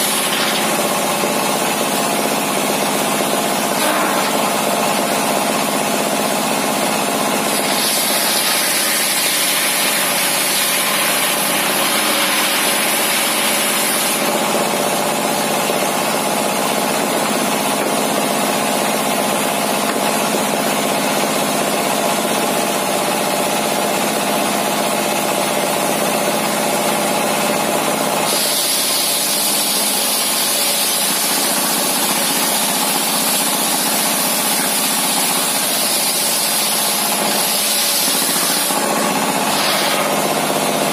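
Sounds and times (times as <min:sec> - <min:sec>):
saw blade cutting timber: 0:00.0 - 0:02.3, 0:03.5 - 0:06.3, 0:07.3 - 0:21.4, 0:28.2 - 0:40.6
diesel engine running: 0:11.0 - 0:28.3.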